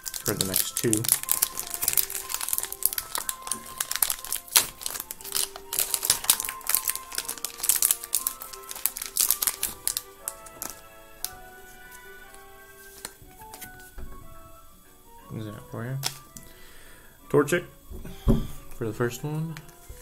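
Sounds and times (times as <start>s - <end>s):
plastic wrapper crinkling: 0.0s - 14.5s, 16.0s - 16.6s
background music with held notes: 0.0s - 20.0s.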